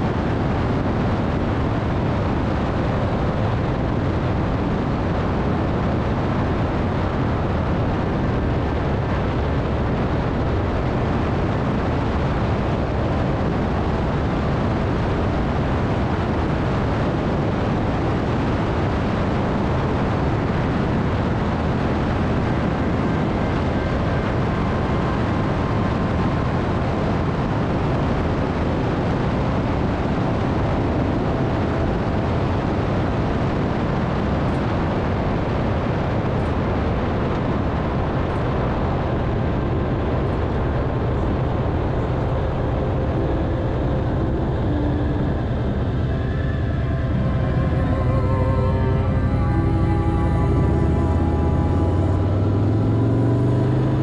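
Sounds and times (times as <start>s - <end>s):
wind rushing on microphone: 0.0s - 54.0s
motorcycle engine cruising: 40.6s - 54.0s.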